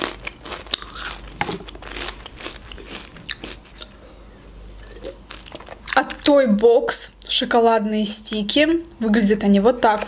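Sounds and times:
crunchy chewing of chips: 0.0s - 4.0s, 4.8s - 6.1s.

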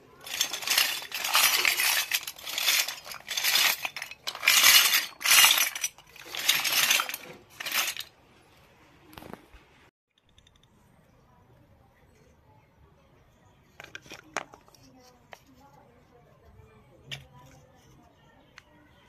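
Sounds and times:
steel toy dishes clattering: 0.1s - 8.1s.

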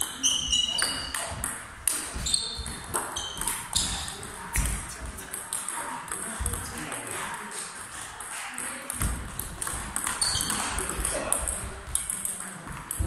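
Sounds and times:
table tennis ball clicking: 0.0s - 6.7s, 7.6s - 13.0s
footwork thuds: 9.0s - 12.0s.

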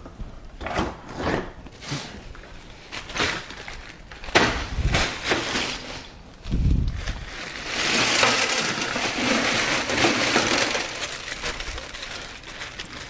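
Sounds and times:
plastic ice bag rustling: 1.8s - 13.0s
freezer door opening and shutting: 7.5s - 12.5s.

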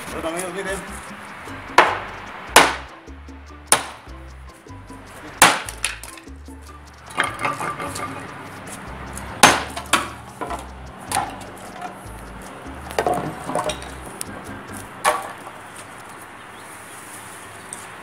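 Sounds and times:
hammer striking clay pot: 0.8s - 4.2s, 4.9s - 6.4s, 7.0s - 15.4s
clay shards clinking: 7.0s - 8.6s.

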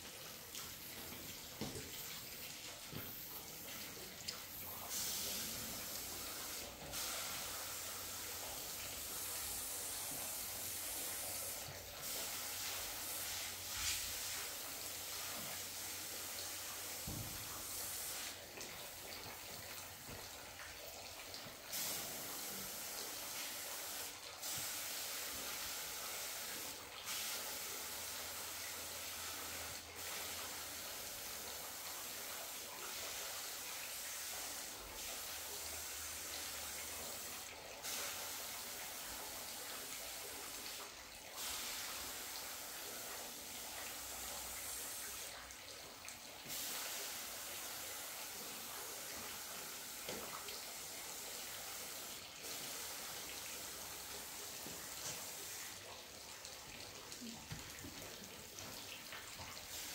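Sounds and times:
spray gun hissing: 4.9s - 14.4s.

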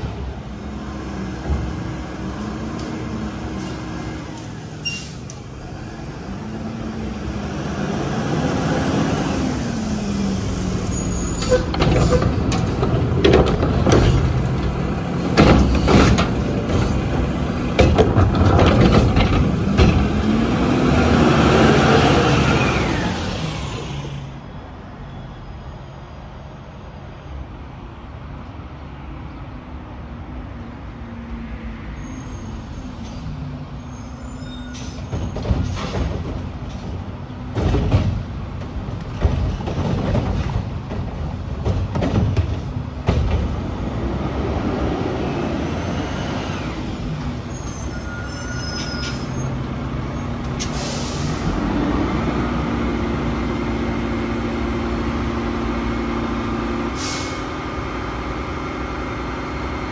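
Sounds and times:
diesel engine revving: 0.0s - 24.4s, 42.8s - 48.3s, 49.3s - 59.9s
loud bangs and clatters: 11.6s - 20.4s, 35.0s - 43.7s.

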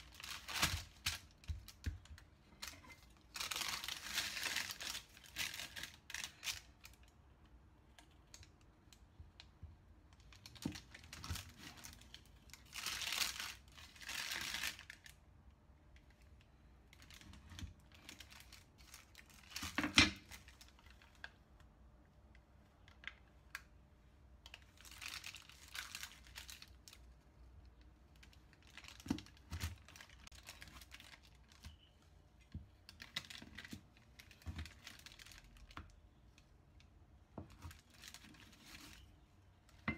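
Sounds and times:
baking paper crinkling: 0.0s - 7.0s, 10.2s - 15.2s, 17.0s - 21.4s, 24.5s - 27.1s, 28.1s - 32.0s, 32.8s - 35.8s, 37.4s - 39.3s.

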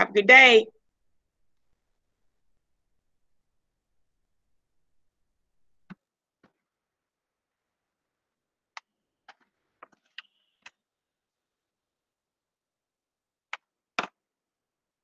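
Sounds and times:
sharp clicks and taps at a desk: 13.5s - 14.2s.

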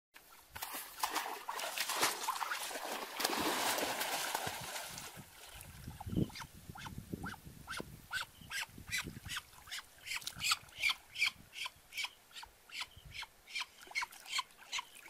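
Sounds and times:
person wading through stream: 0.2s - 6.2s
water splashing and sloshing: 0.2s - 6.2s.

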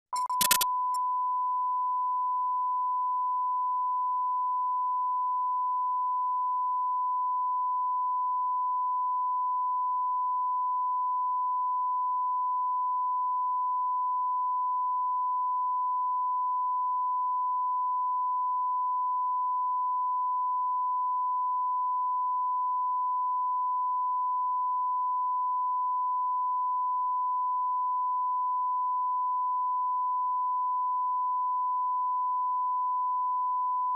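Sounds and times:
steady test tone: 0.1s - 0.6s.

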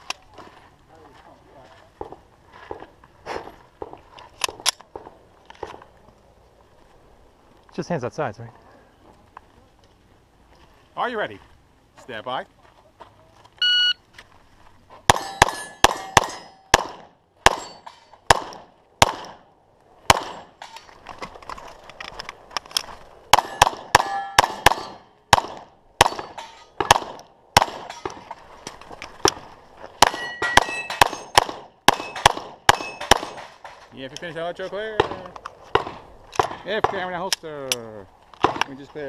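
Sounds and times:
shot timer beep: 13.6s - 14.0s
steel target plates ringing: 15.1s - 16.7s, 17.6s - 18.2s, 23.4s - 25.0s, 26.0s - 26.8s, 30.1s - 31.4s, 32.0s - 33.9s
pistol shots: 15.1s - 19.4s, 20.1s - 20.6s, 23.3s - 28.2s, 30.0s - 33.7s, 35.0s - 37.1s, 38.4s - 38.7s.

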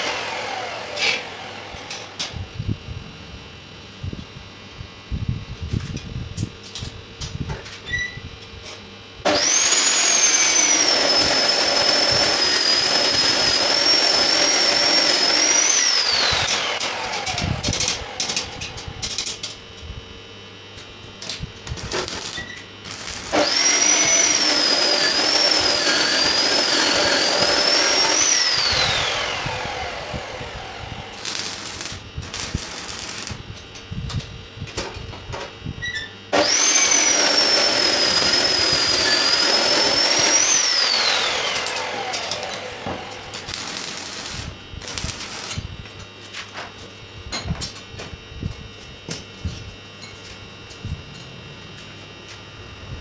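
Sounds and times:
electric power tool whining: 0.0s - 2.4s, 9.2s - 19.6s, 21.2s - 34.4s, 35.0s - 46.4s.

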